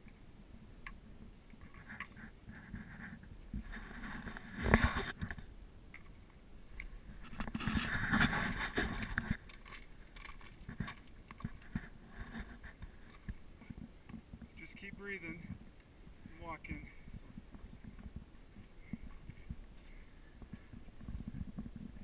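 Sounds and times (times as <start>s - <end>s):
small clicks and knocks: 0.8s - 14.6s.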